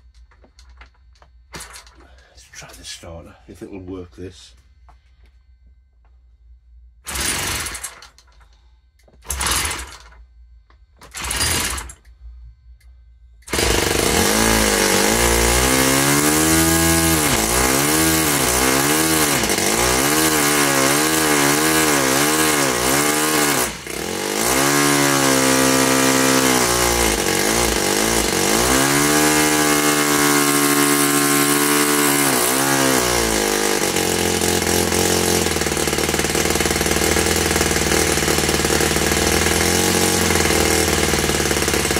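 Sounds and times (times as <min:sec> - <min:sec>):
electric starter spinning: 0:07.0 - 0:08.4, 0:09.0 - 0:10.2, 0:11.0 - 0:12.2, 0:13.4 - 0:41.9
model engine running: 0:07.1 - 0:08.4, 0:09.2 - 0:10.2, 0:13.5 - 0:41.9.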